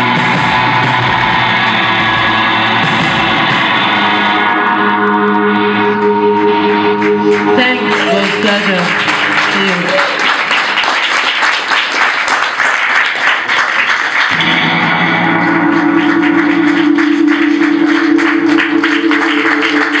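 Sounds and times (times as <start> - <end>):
audience applauding: 0.0 - 4.3, 7.0 - 20.0
steady droning chord: 1.2 - 9.9, 14.3 - 20.0.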